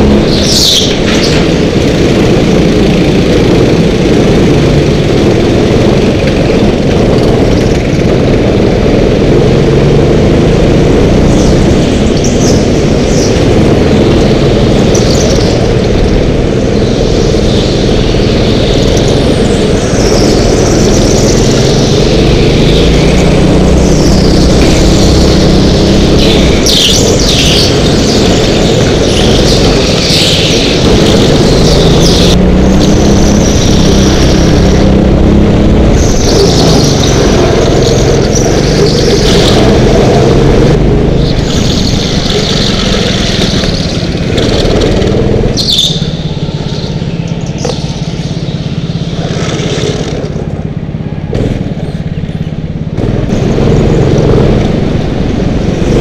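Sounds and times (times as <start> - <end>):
go-kart engine revving: 0.0 - 56.0
tyres squealing: 35.9 - 50.2.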